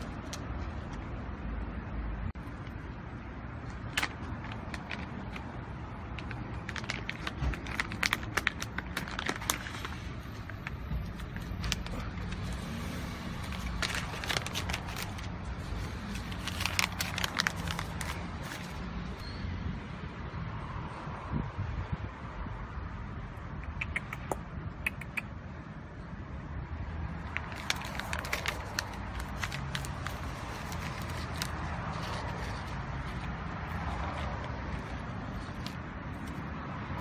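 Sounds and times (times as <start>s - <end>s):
low outdoor rumble: 0.0s - 19.2s, 27.2s - 37.0s.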